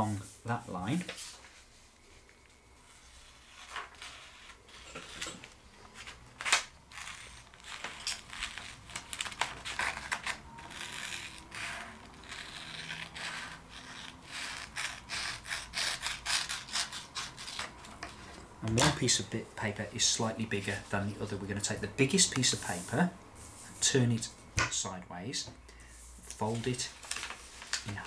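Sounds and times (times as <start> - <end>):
scissors snipping paper: 6.9 - 18.0
paper rustling: 26.3 - 28.0.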